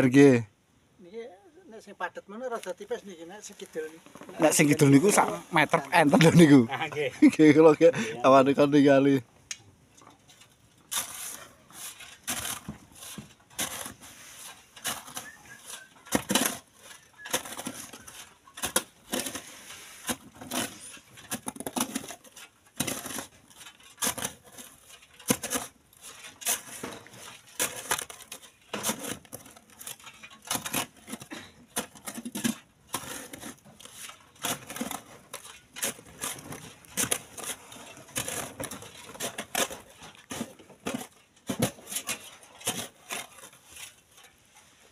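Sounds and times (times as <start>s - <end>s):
shovel scraping into gravel: 10.2s - 44.9s.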